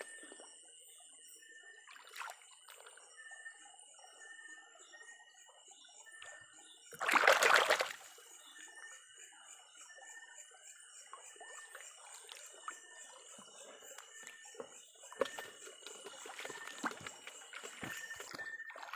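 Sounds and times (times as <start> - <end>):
stream trickling: 0.0 - 3.3, 6.2 - 8.8, 10.8 - 18.9
hand splashing water: 7.0 - 8.0.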